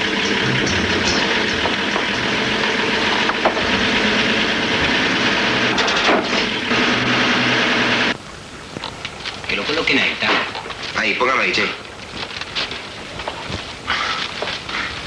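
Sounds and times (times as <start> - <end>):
vehicle engine running: 0.0 - 8.2
street noise hiss: 6.7 - 15.0.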